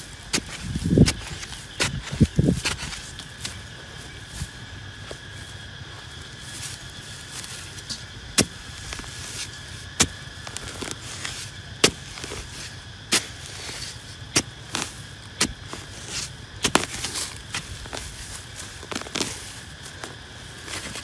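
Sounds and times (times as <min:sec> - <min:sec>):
digging tool striking hard earth: 0:00.0 - 0:03.7, 0:07.3 - 0:21.0
scrapes and thuds: 0:00.0 - 0:05.2, 0:06.4 - 0:21.0.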